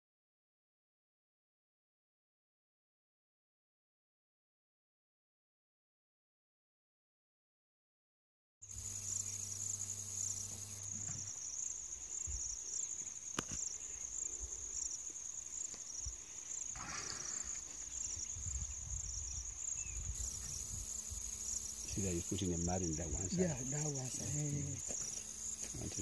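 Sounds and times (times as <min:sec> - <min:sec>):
insects trilling: 0:08.6 - 0:26.0.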